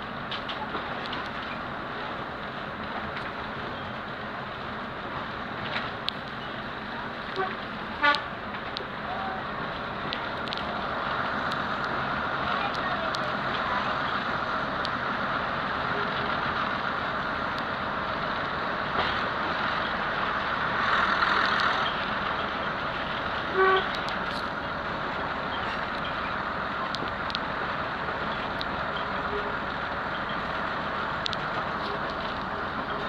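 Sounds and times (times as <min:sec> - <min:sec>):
train engine and wheels humming: 0:00.0 - 0:33.0
train horn toot: 0:07.4 - 0:08.3, 0:23.5 - 0:24.0
faint clicks: 0:10.1 - 0:14.2, 0:31.2 - 0:32.5.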